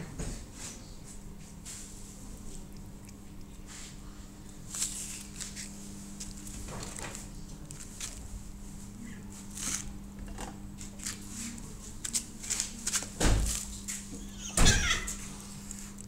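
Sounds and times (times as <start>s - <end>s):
steady low hum: 0.0s - 16.0s
cat licking from a spoon: 2.0s - 4.6s.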